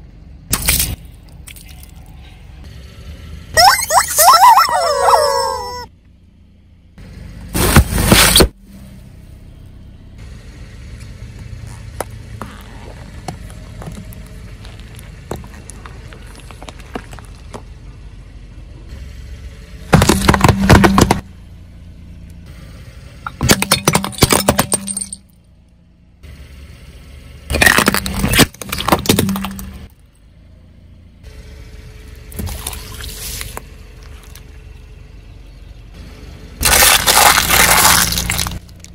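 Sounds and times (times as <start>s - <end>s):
low rumble of car: 0.0s - 38.9s
tyre crushing objects: 7.6s - 8.6s, 19.9s - 21.2s, 27.5s - 29.8s, 36.6s - 38.7s.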